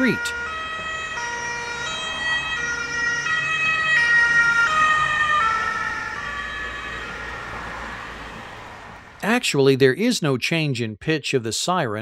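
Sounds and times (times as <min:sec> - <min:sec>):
ambulance two-tone siren: 0:00.0 - 0:09.2.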